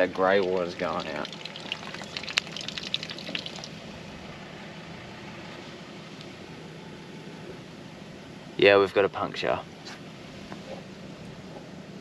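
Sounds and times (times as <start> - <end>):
sharp drips: 0.4 - 3.8
water stream splashing on ground: 0.4 - 3.9.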